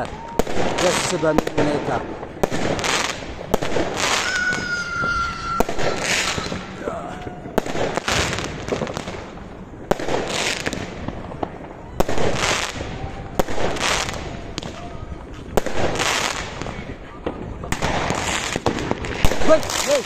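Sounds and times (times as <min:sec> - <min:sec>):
fireworks crackling bursts: 0:00.0 - 0:20.0
fireworks sharp bangs: 0:00.0 - 0:20.0
high firework whistle: 0:04.0 - 0:06.8.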